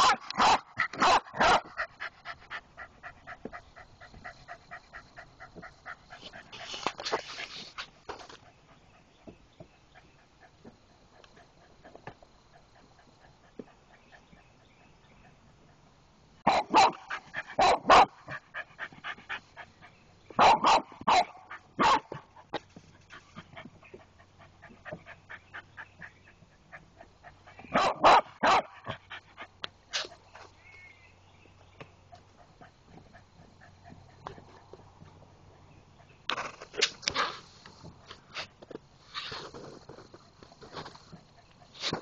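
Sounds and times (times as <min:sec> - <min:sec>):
dog barking sharply: 0:00.0 - 0:01.7, 0:16.5 - 0:18.2, 0:20.4 - 0:22.2, 0:27.7 - 0:28.8
dog yapping quietly: 0:16.5 - 0:18.2, 0:20.4 - 0:22.2, 0:27.5 - 0:29.0.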